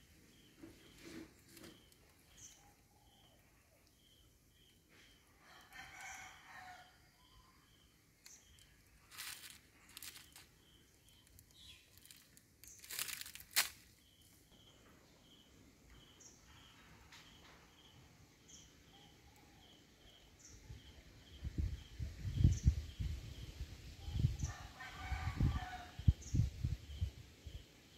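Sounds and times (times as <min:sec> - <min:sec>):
plastic wrapper crinkling: 0:08.5 - 0:10.5, 0:11.1 - 0:13.9.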